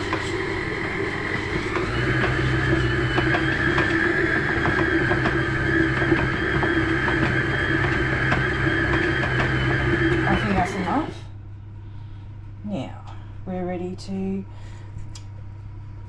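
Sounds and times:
stand mixer motor humming: 0.0s - 11.2s.

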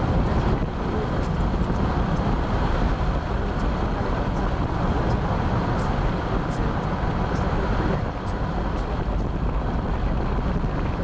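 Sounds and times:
car road noise rumble: 0.0s - 11.0s.

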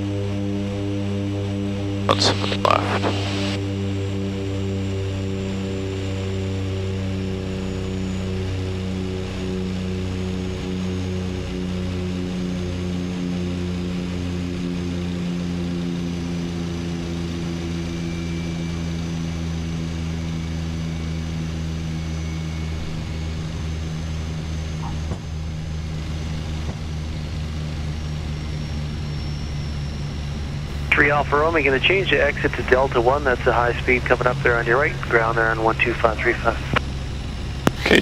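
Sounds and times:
turboprop engines humming: 0.0s - 38.0s.

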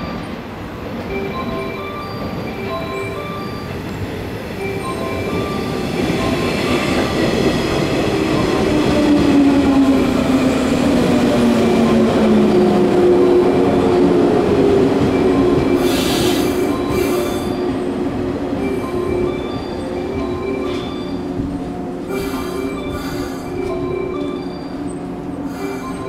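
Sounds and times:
air hissing: 15.8s - 17.6s, 22.1s - 23.6s.

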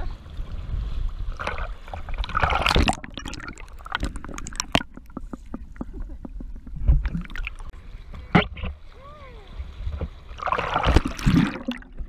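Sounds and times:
water sloshing and splashing: 0.0s - 12.0s
underwater bubbles crackling: 1.2s - 8.8s, 9.9s - 12.0s
loud splash: 1.4s - 4.9s, 10.4s - 12.0s.

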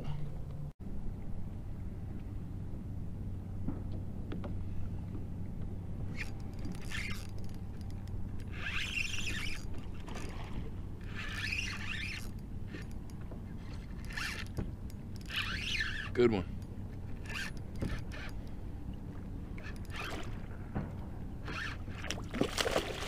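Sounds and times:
low hum: 0.0s - 23.0s
fishing reel whirring: 6.1s - 18.6s, 19.5s - 20.4s, 21.4s - 22.2s.

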